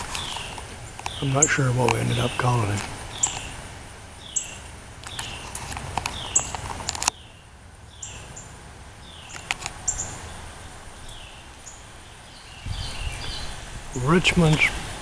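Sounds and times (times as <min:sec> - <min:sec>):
sharp clicks: 0:00.0 - 0:03.6, 0:05.0 - 0:07.2, 0:09.3 - 0:09.8
songbird calling: 0:00.0 - 0:15.0.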